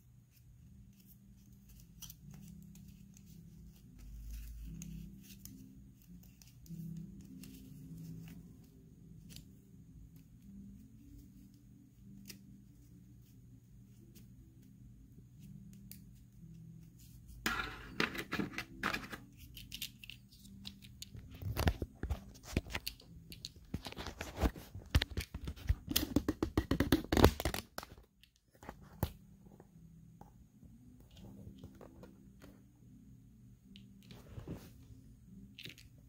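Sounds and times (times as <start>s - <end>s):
faint low hum: 27.9s - 36.0s.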